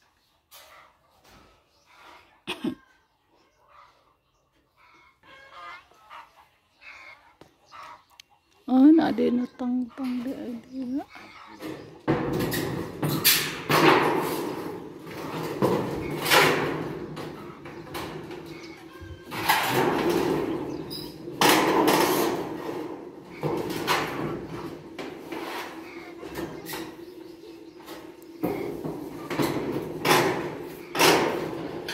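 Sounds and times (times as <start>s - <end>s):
metal sheet scraping and clattering: 11.6s - 31.9s.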